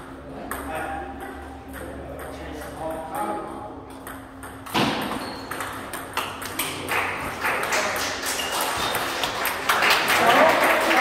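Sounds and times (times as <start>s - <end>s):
table tennis ball clicking: 5.5s - 6.9s.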